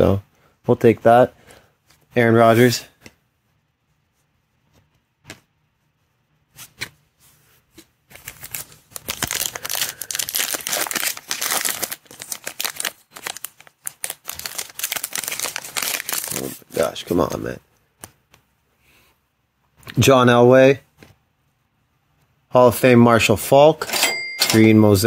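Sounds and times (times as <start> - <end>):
foil pack crinkling: 8.1 - 17.2.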